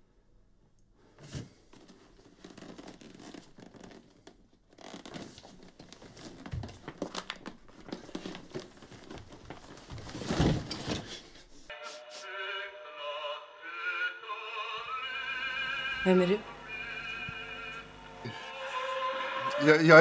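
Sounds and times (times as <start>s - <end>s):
rustling and scraping handling noises: 1.1s - 11.7s.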